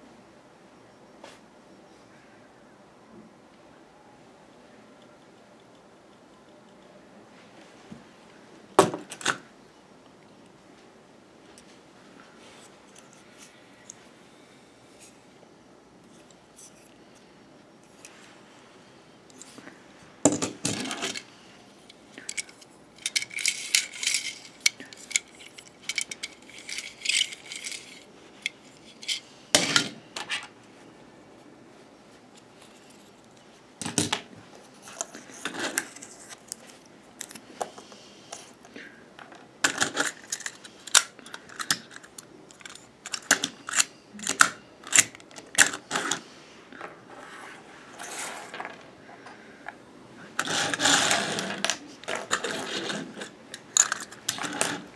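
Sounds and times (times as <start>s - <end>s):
plastic toy pieces clicking: 22.2s - 29.2s, 39.7s - 46.2s, 50.4s - 54.9s.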